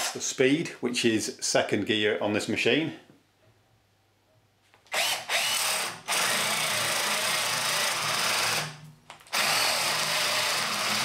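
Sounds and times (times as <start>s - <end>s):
cordless drill boring into wood: 4.9s - 11.0s.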